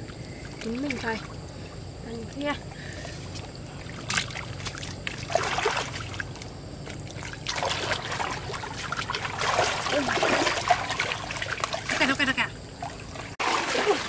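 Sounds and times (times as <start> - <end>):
low steady hum: 0.0 - 14.0
water splashing and trickling: 0.0 - 14.0.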